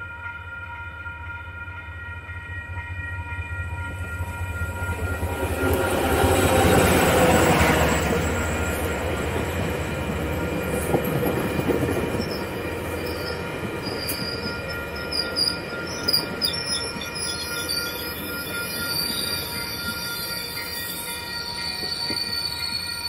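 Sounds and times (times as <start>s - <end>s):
train wheels rumbling on rails: 1.8s - 23.0s
high-pitched ringing tones: 12.2s - 23.0s.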